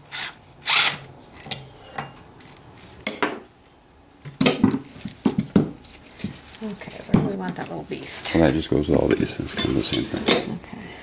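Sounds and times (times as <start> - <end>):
metal parts clinking: 2.0 - 3.5.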